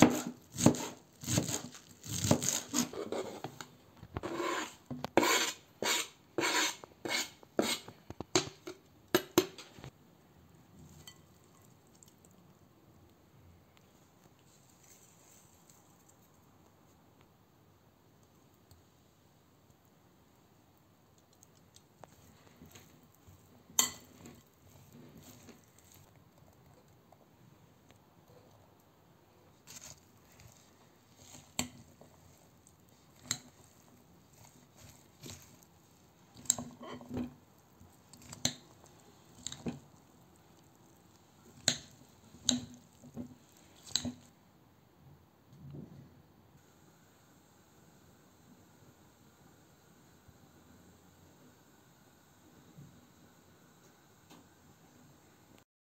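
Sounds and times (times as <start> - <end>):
wet squishing of salad: 10.8 - 12.6, 21.2 - 27.1, 29.5 - 44.3.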